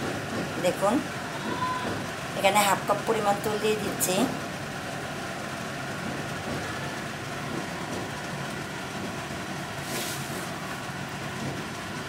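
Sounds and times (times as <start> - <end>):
gas burner roaring: 0.0 - 12.0
brief hiss: 9.8 - 10.5.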